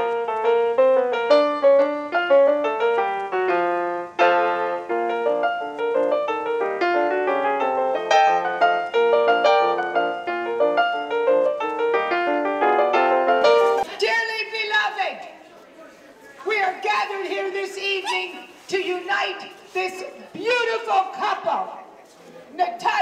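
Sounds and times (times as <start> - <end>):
piano melody: 0.0 - 13.9.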